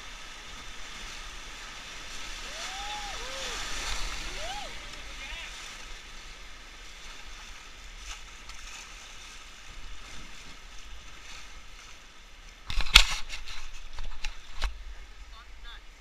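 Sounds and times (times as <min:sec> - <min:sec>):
river rapids rushing: 0:01.1 - 0:06.4.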